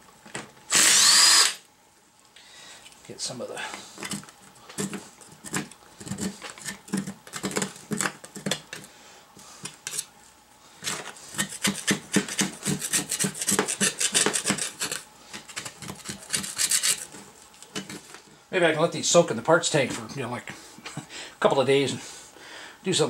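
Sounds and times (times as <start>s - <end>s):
metal scraper rasping on steel: 11.3s - 17.1s.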